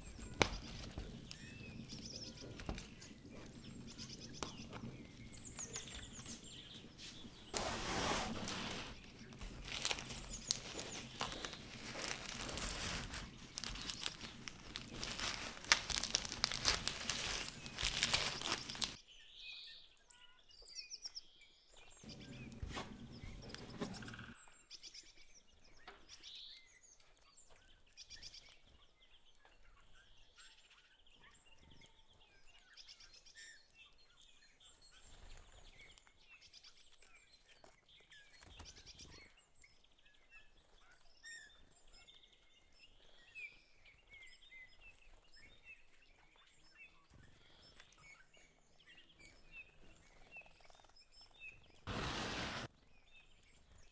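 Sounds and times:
faint bird chirps: 0.0 - 7.6, 8.4 - 51.9
paper and tape rustling: 0.0 - 19.0, 51.9 - 52.7.

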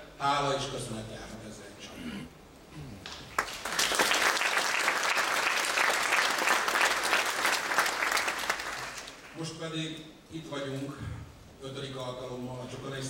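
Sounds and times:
audience applauding: 3.1 - 9.4.

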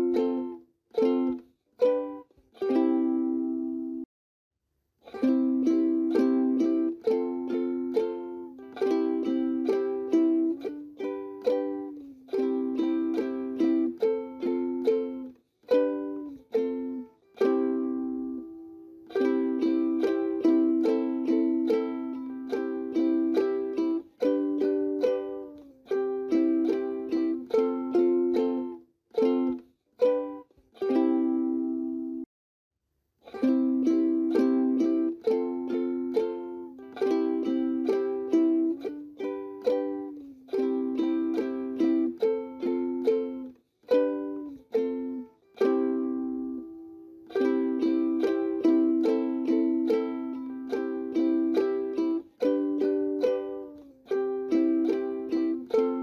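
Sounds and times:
plucked string music: 0.0 - 4.1, 5.0 - 32.3, 33.2 - 56.0.

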